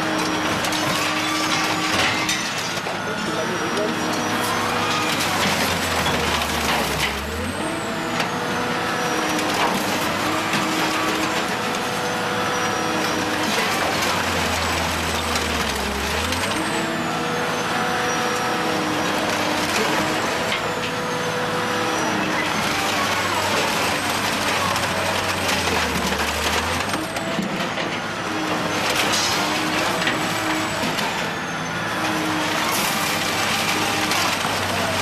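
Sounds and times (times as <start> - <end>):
shredder machine running: 0.0 - 35.0
metal screeching and squealing: 0.6 - 7.9, 8.6 - 27.2.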